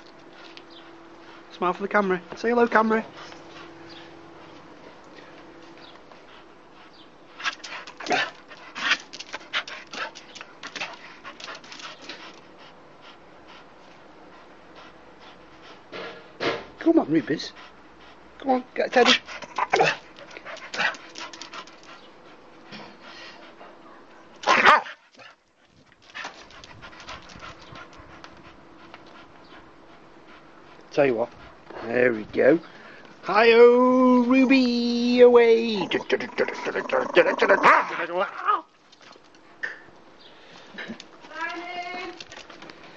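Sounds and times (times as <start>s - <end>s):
dog panting rapidly: 0.2s - 4.6s, 5.8s - 16.0s, 17.0s - 24.0s, 24.8s - 32.2s
dog barking: 24.4s - 25.0s.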